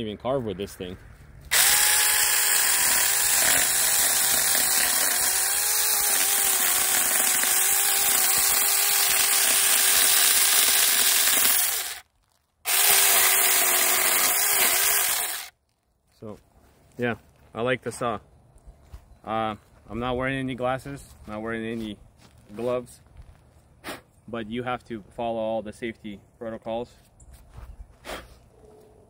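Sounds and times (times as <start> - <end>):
electric chainsaw cutting wood: 1.5 - 12.0, 12.7 - 15.5.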